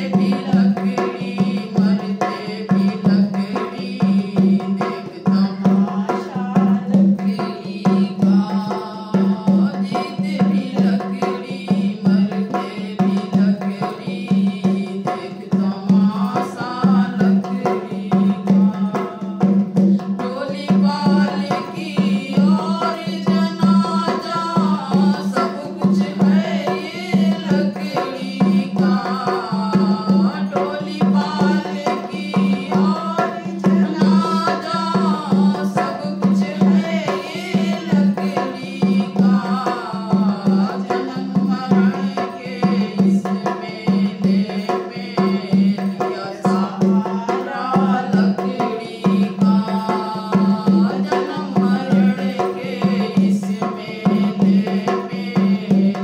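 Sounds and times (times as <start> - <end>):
dholak drum rhythm: 0.0 - 56.0
woman singing devotional song: 0.0 - 56.0.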